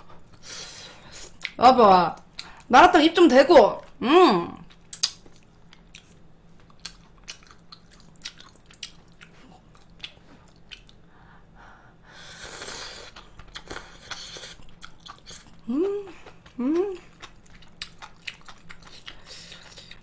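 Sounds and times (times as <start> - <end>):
person chewing noodles: 4.7 - 11.2, 12.1 - 20.0.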